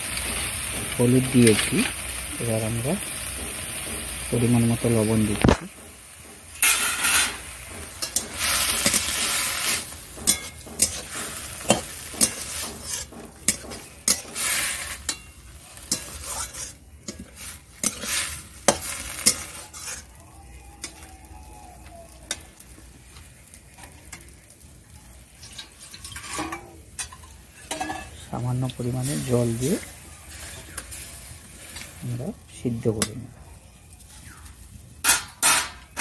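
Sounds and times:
greens sizzling: 0:00.0 - 0:36.0
metal spatula scraping pan: 0:03.1 - 0:20.2, 0:25.3 - 0:32.0, 0:35.0 - 0:36.0.

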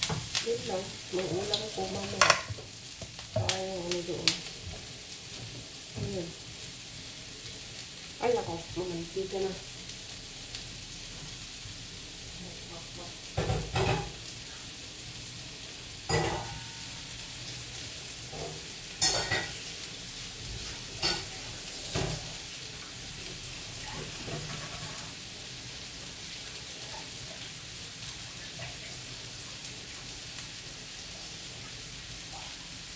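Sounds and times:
food sizzling in a pan: 0:00.0 - 0:32.9.

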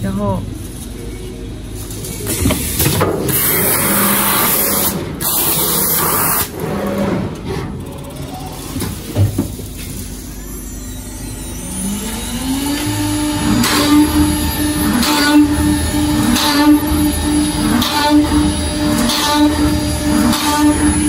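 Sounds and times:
steady machine noise: 0:00.0 - 0:21.0
drill spindle motor whine: 0:10.1 - 0:21.0.

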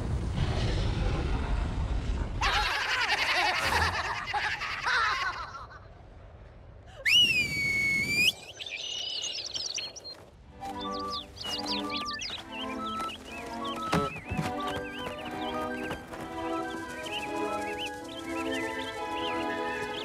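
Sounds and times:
low rumble: 0:00.0 - 0:02.5
long rising whistle: 0:07.0 - 0:08.5
high wavering cries and chirps: 0:07.0 - 0:10.2.

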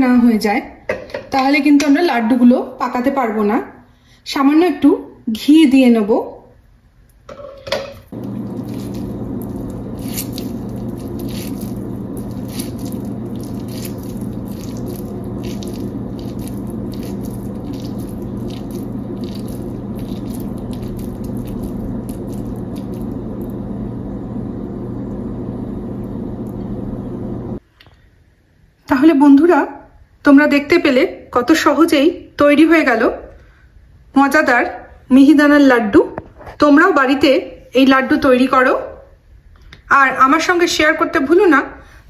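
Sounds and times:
low hum: 0:08.1 - 0:27.6
sticky food squishing by hand: 0:08.2 - 0:23.6.

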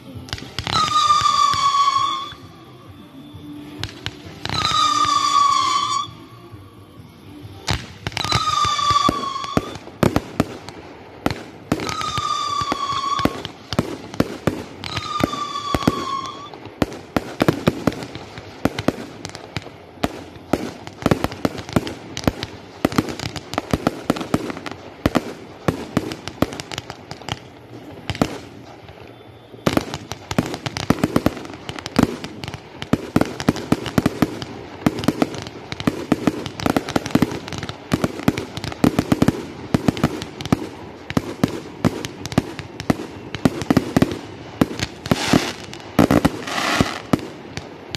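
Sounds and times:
firework bangs and crackles: 0:00.0 - 0:47.9
firework whistles: 0:00.1 - 0:47.6.

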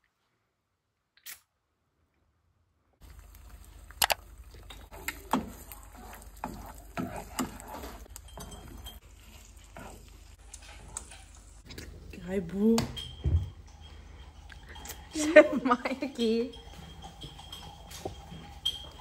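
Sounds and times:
eggs sizzling in a pan: 0:03.0 - 0:19.0
plastic spatula scraping a pan: 0:04.9 - 0:11.3.

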